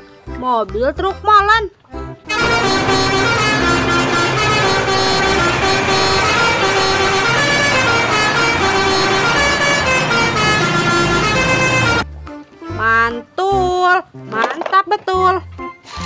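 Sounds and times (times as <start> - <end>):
diesel truck engine running: 2.3 - 12.0
steady pitched tones: 2.3 - 12.0.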